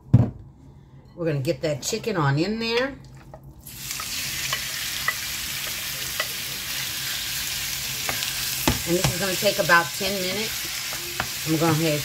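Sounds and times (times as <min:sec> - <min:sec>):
chicken sizzling in oil: 0:03.6 - 0:12.0.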